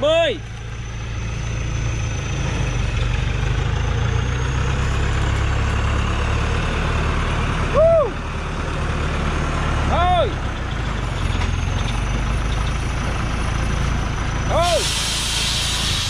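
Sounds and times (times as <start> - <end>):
diesel truck engine running: 0.0 - 16.0
person shouting a call: 9.9 - 10.4, 14.5 - 14.9.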